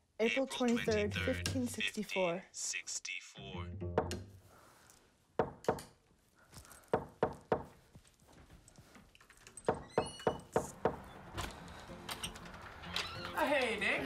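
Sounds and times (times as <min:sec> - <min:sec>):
knocking on door: 0:03.9 - 0:04.3, 0:05.4 - 0:05.8, 0:09.6 - 0:11.0
footsteps: 0:06.1 - 0:09.6.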